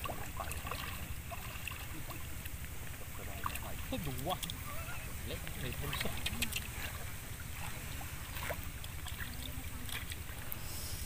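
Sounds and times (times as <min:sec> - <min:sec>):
water sloshing and dripping: 0:00.0 - 0:10.7.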